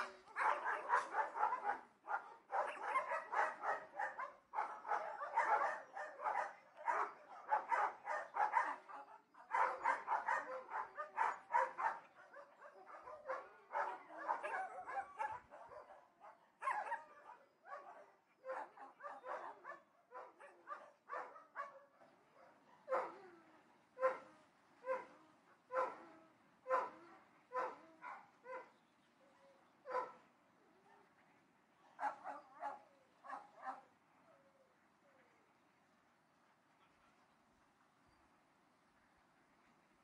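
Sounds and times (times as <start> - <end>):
distant dogs barking: 0.0 - 23.4, 24.0 - 28.8, 29.4 - 30.2, 32.0 - 33.9.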